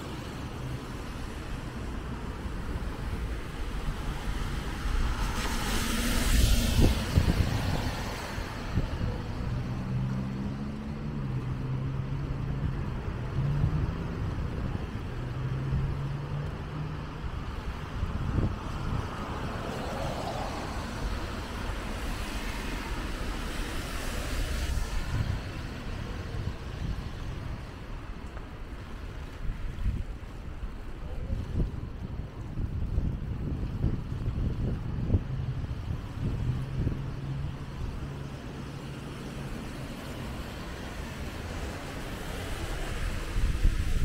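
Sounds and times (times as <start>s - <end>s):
car tyres hissing on wet road: 0.0s - 10.7s, 16.8s - 30.6s, 36.2s - 44.0s.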